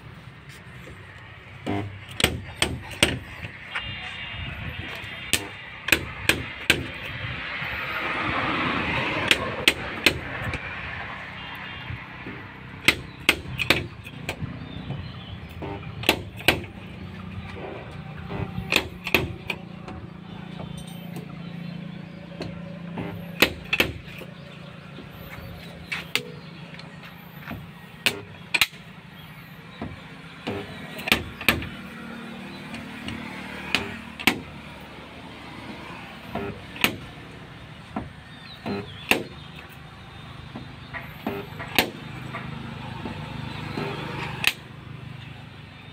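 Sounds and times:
dent puller snaps and knocks: 12.8s - 14.4s, 43.8s - 44.6s.

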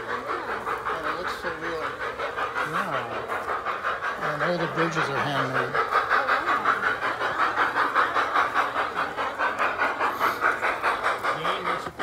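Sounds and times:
model steam locomotive chuffing: 0.0s - 12.0s.

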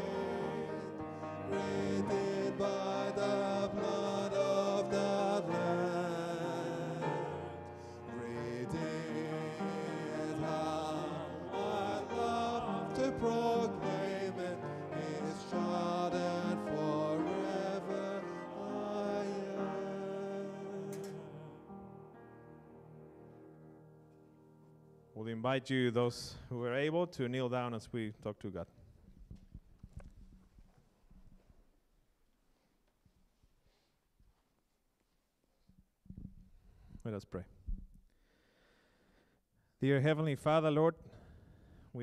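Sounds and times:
men singing a hymn: 0.0s - 21.9s
musical accompaniment: 0.0s - 25.0s.

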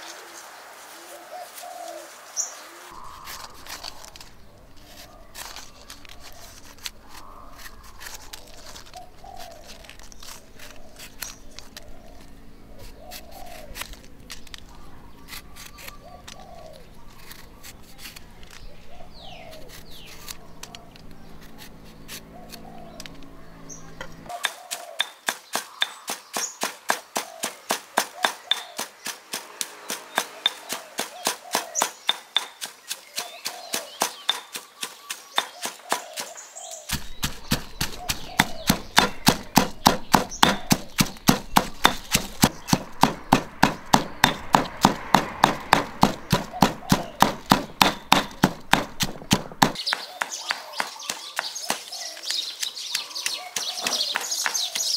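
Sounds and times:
stone pestle pounding in mortar: 24.3s - 28.9s, 36.9s - 52.0s.

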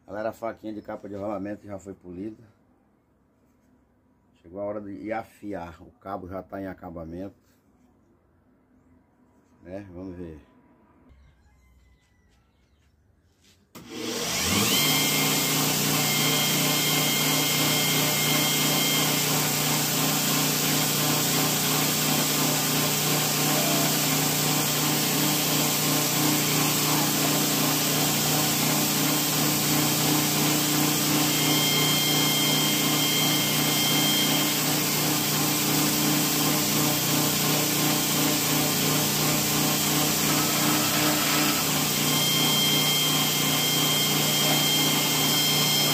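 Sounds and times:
belt grinder motor humming: 13.8s - 45.9s
blade grinding on abrasive belt: 13.8s - 45.9s.

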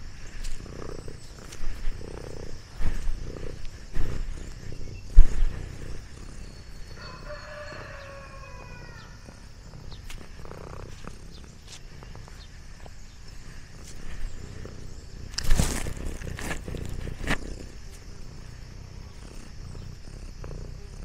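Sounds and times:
distant rooster crow: 7.0s - 9.2s.

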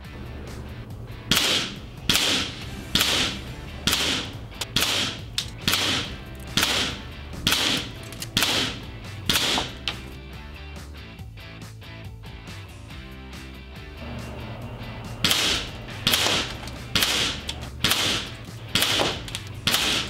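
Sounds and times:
background music: 0.0s - 20.0s
air rifle shots: 1.3s - 10.1s, 15.2s - 20.0s.

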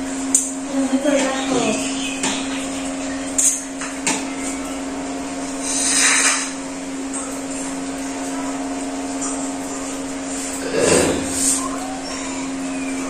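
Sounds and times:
steady hum: 0.0s - 13.0s
short hiss: 5.6s - 6.6s.

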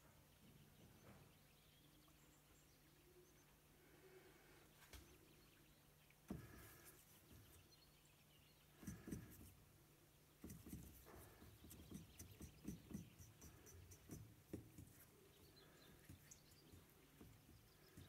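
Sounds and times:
paintbrush scrubbing in palette: 8.8s - 9.6s, 10.4s - 18.0s.

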